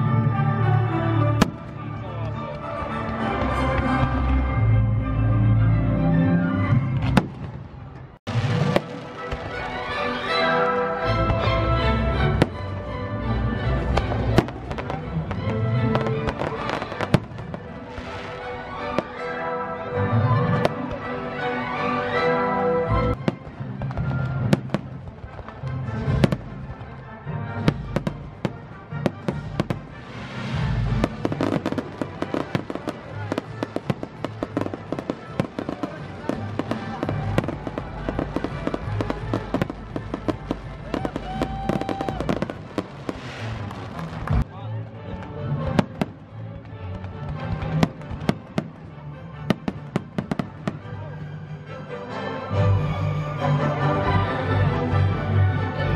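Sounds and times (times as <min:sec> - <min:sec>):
background show music: 0:00.0 - 0:55.9
firework crackling: 0:07.2 - 0:10.9, 0:14.0 - 0:19.4, 0:27.7 - 0:44.5.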